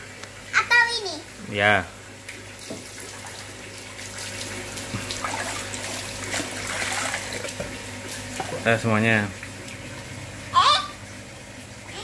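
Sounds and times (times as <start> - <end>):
water splashing and pouring: 2.3 - 8.7.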